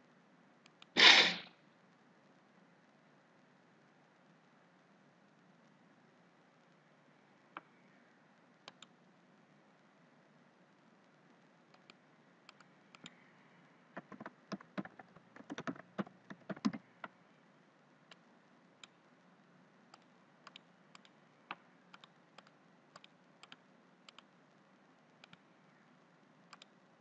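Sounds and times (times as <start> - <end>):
computer mouse clicks: 0.6 - 1.1, 8.6 - 9.0, 11.7 - 13.3, 14.0 - 17.2, 19.9 - 24.3, 25.2 - 25.4, 26.5 - 26.8
typing on computer keyboard: 14.0 - 17.2, 20.0 - 21.1.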